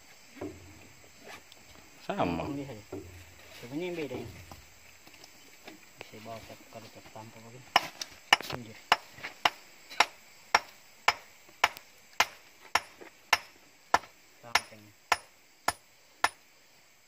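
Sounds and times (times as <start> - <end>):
stone knocking on rock: 7.8 - 16.4.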